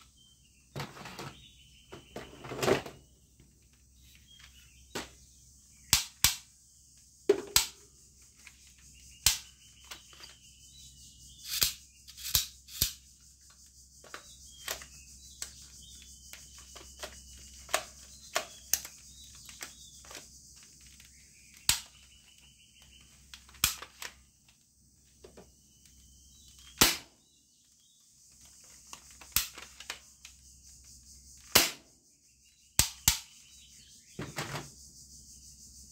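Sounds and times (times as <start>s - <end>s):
plastic toy gun clicks: 5.9s - 6.4s, 11.5s - 13.0s, 23.6s - 24.1s.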